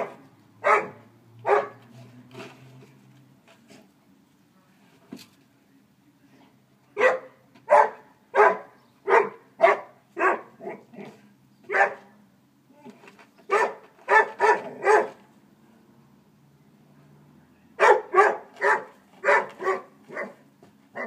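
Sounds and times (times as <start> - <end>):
dog barking: 0.0 - 1.8, 7.0 - 11.0, 11.7 - 12.1, 13.5 - 15.2, 17.8 - 20.4.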